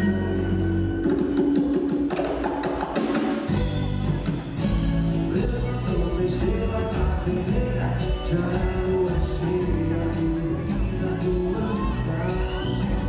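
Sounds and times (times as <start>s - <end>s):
hand drums: 0.0s - 8.9s
acoustic guitars: 0.0s - 13.0s
bass line: 3.5s - 13.0s.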